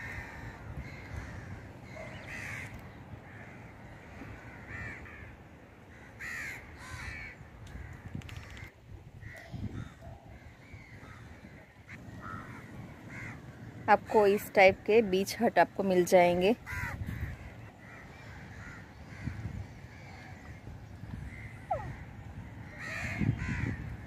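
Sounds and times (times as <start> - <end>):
birds calling: 0.0 - 15.3, 15.9 - 24.0.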